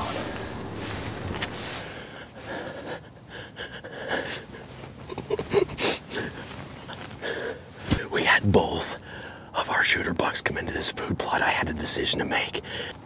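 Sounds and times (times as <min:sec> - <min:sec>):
man breathing hard: 0:01.8 - 0:04.7, 0:09.0 - 0:09.5, 0:12.6 - 0:13.0.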